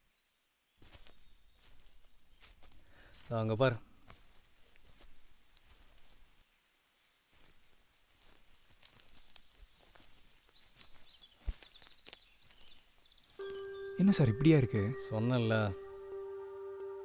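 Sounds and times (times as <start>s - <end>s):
short high chirps: 13.4s - 17.0s.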